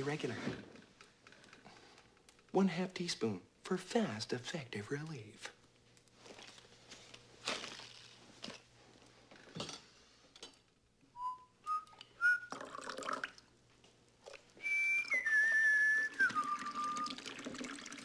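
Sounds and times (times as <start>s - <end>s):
man whistling: 11.2s - 12.8s, 14.6s - 17.3s
liquid pouring into a mug: 12.5s - 13.5s, 16.3s - 18.0s.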